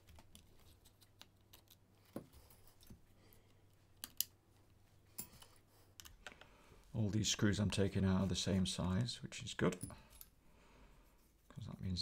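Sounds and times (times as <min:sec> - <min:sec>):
small screws and plastic parts clicking: 0:00.0 - 0:04.4, 0:05.2 - 0:06.5.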